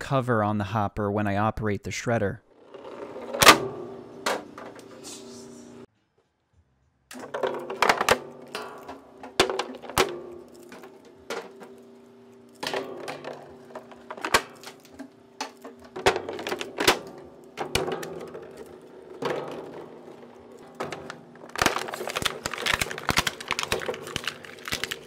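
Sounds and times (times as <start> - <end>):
plastic bottles cracking and snapping: 7.1 - 25.0.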